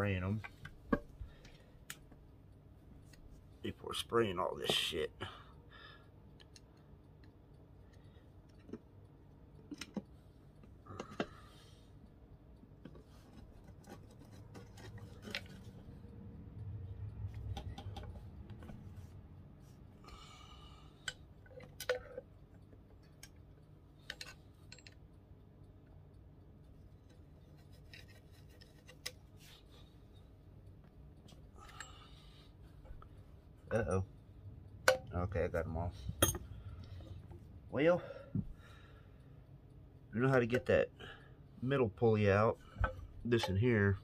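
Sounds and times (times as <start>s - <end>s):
metallic clicks and scrapes: 12.8s - 16.2s, 21.0s - 25.1s, 26.8s - 30.4s.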